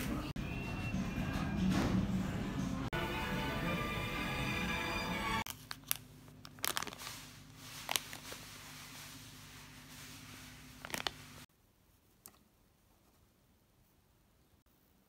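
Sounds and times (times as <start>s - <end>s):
cellophane crinkling and crackling: 5.4s - 11.5s.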